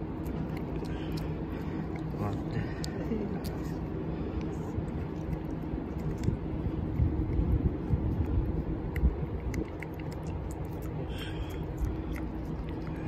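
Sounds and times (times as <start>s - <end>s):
steady low rumble: 0.0s - 13.0s
cat tongue licking clicks: 4.4s - 13.0s.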